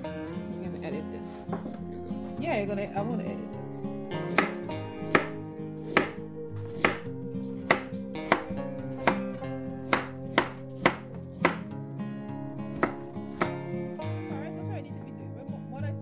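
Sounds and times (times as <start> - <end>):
knife knocking on wooden board: 1.5 - 1.8
knife slicing radishes: 4.2 - 11.7, 12.7 - 13.6.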